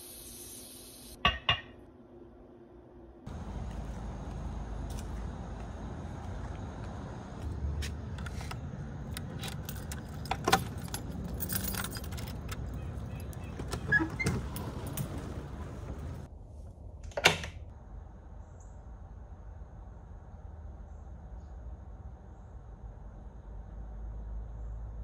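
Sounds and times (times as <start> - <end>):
keys jangling: 9.1 - 16.1.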